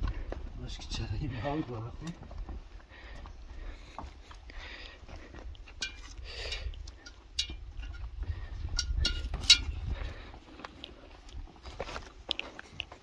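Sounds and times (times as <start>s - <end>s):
footsteps scraping over rock: 0.0s - 13.0s
metallic clinks of gear: 8.7s - 9.8s.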